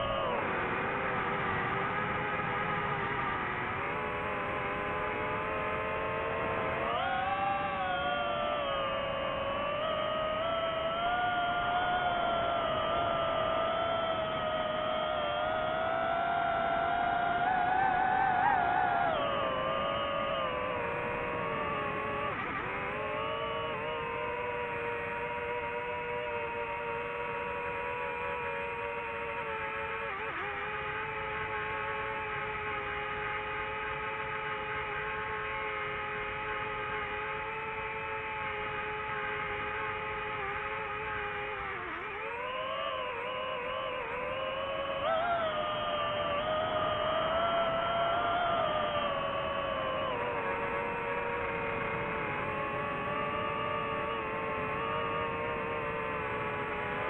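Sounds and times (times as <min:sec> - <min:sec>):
drone propellers whining: 0:00.0 - 0:57.0
rushing wind: 0:05.1 - 0:28.2.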